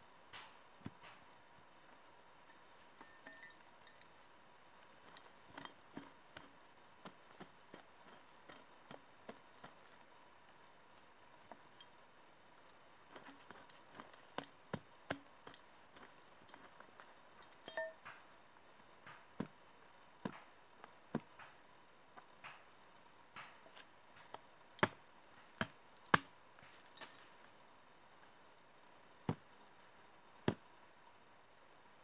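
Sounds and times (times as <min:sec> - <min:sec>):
knife chopping wooden sticks: 0:05.1 - 0:09.9, 0:13.1 - 0:17.1.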